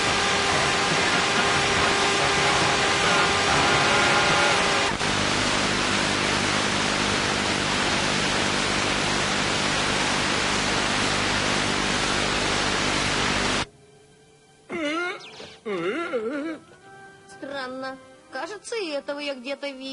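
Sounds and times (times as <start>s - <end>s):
static hiss: 0.0s - 15.7s.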